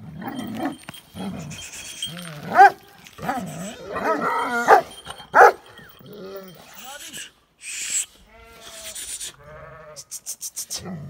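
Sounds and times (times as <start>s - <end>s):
dogs barking: 0.2s - 6.5s
dog whining: 0.2s - 6.8s.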